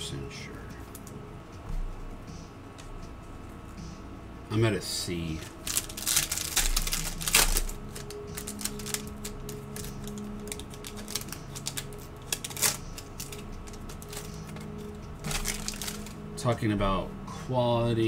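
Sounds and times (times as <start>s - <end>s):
foil wrapper crinkling: 5.3s - 16.2s
foil wrapper ripping: 5.4s - 16.2s.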